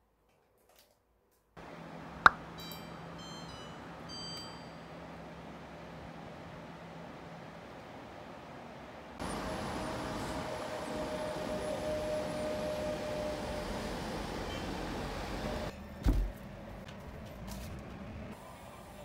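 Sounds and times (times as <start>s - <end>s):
road traffic noise: 1.6s - 19.0s.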